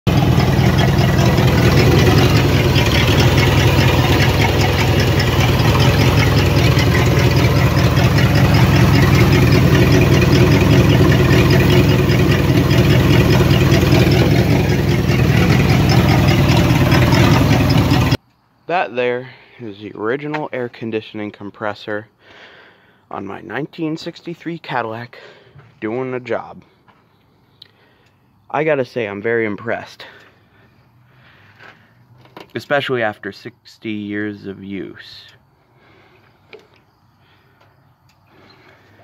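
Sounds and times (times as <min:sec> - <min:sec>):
car engine idling: 0:00.0 - 0:18.2.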